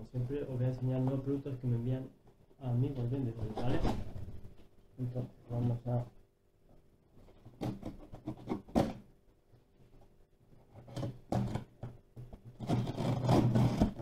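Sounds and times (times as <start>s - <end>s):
tool slitting packing tape: 12.6s - 14.0s.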